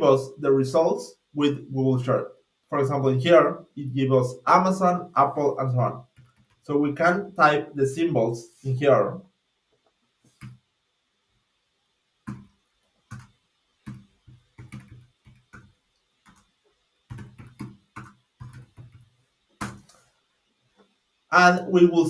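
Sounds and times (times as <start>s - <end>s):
computer keyboard typing: 6.1s - 6.6s, 12.2s - 20.0s.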